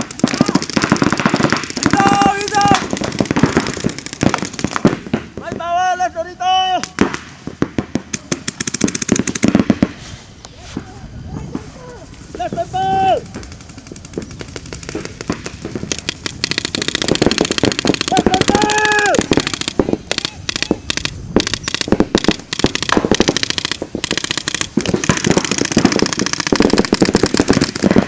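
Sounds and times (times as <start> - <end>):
paintball markers firing: 0.0 - 5.1, 6.8 - 9.8, 13.2 - 28.0
person shouting: 1.9 - 2.8, 18.1 - 19.3.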